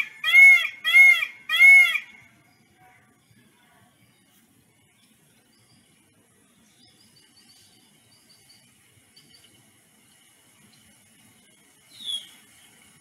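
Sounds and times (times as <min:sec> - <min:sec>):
small bird chirping: 0:04.0 - 0:13.0.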